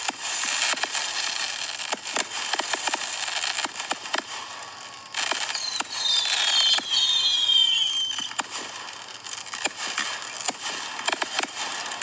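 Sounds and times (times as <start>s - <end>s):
fireworks sharp pops: 0.0s - 12.0s
fireworks whistling falling in pitch: 5.2s - 8.7s.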